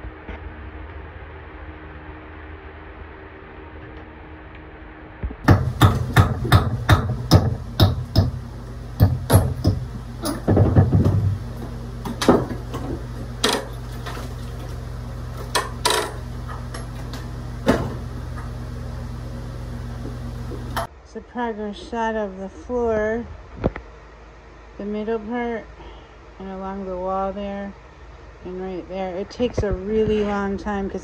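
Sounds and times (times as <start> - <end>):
steady low hum: 0.0 - 31.0
hammer strikes on wood: 5.4 - 11.4, 12.1 - 12.6.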